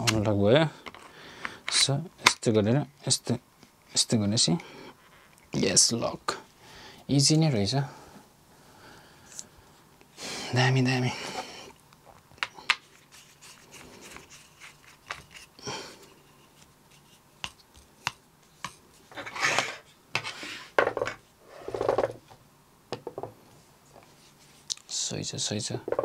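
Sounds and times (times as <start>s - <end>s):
plastic and metal scraping: 19.1s - 22.2s.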